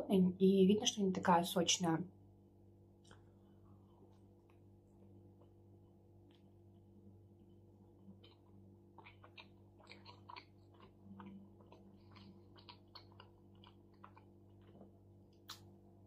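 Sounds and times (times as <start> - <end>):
low steady hum: 0.0 - 16.0
chewing mouth clicks: 8.1 - 15.6.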